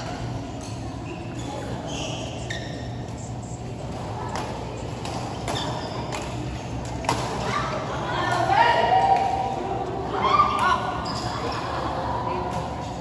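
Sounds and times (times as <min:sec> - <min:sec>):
background chatter: 0:00.0 - 0:13.0
steady hum: 0:00.0 - 0:13.0
shoe squeaks: 0:01.0 - 0:03.9, 0:04.7 - 0:06.4, 0:11.0 - 0:11.5.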